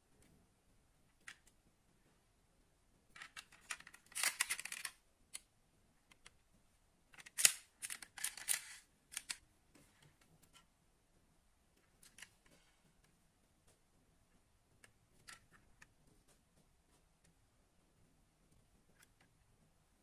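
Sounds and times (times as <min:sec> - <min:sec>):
toy car clicking and scraping: 0:03.2 - 0:05.0, 0:07.2 - 0:09.4.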